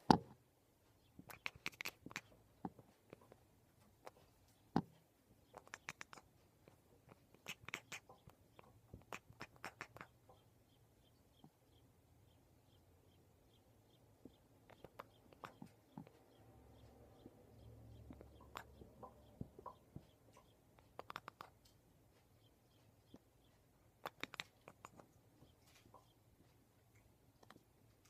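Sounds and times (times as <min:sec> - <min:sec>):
cat chattering teeth clicks: 0:01.3 - 0:02.3, 0:05.6 - 0:06.2, 0:07.4 - 0:08.2, 0:09.0 - 0:10.1, 0:20.8 - 0:21.6, 0:24.1 - 0:25.0.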